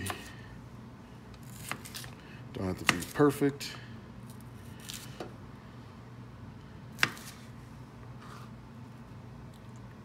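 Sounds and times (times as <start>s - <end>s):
knife chopping on cutting board: 1.4s - 2.1s, 2.8s - 3.2s, 7.0s - 7.4s.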